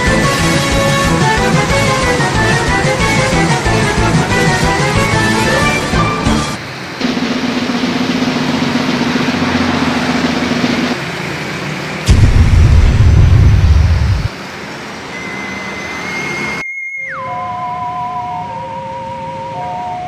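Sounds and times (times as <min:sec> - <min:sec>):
cars and motorcycles passing: 0:06.4 - 0:12.0
loud low rumble: 0:12.1 - 0:14.3
steady high tone: 0:15.0 - 0:20.0.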